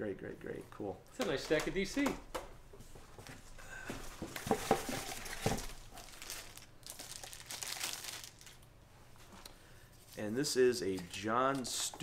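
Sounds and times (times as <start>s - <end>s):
plastic bag crinkling: 5.0s - 8.6s.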